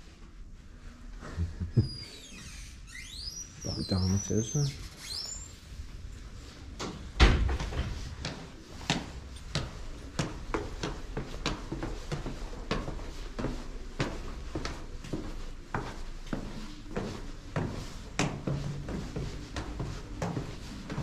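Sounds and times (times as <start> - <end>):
footsteps going down stairs: 5.8 - 21.0.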